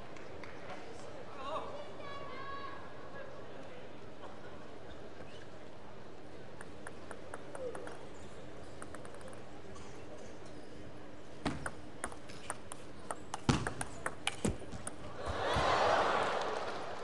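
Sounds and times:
table tennis ball clicking: 8.8s - 9.4s, 11.5s - 15.0s
crowd applause: 15.2s - 17.0s.

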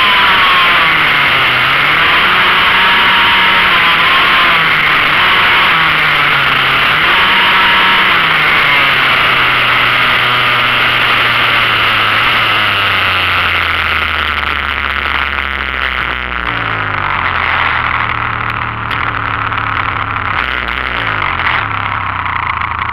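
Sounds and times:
motorcycle engine: 0.0s - 22.9s
wind and road noise: 0.0s - 22.9s.

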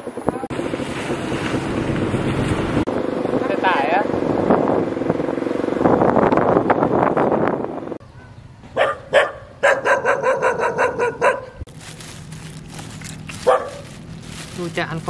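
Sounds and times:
dog barking: 8.2s - 11.6s, 13.4s - 14.0s
plastic bag crinkling: 11.7s - 15.0s.

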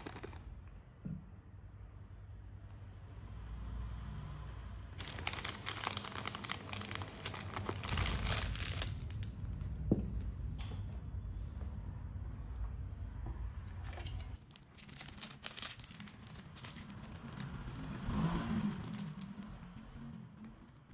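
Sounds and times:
plastic piping bag crinkling: 0.0s - 0.5s, 5.0s - 9.4s, 14.4s - 20.0s.

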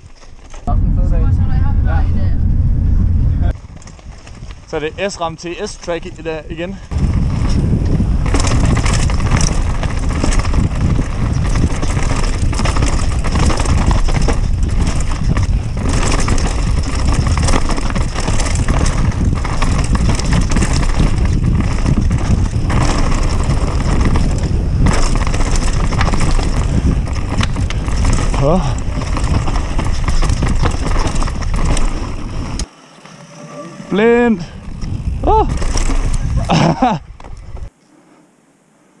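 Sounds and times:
wind rumble on microphone: 0.0s - 32.7s, 33.5s - 37.7s
bike rattling: 0.0s - 37.8s
tyres crunching over gravel: 6.9s - 33.1s.

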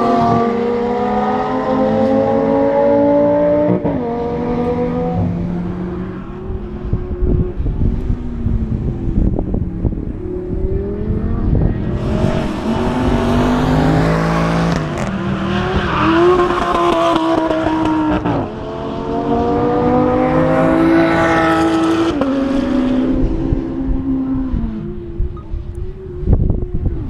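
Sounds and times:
car engine accelerating hard: 0.0s - 25.2s.

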